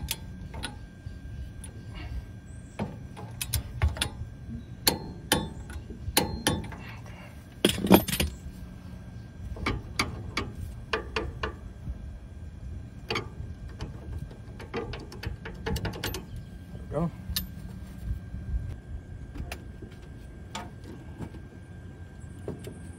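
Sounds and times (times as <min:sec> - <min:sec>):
metal clinks: 0:07.7 - 0:08.4.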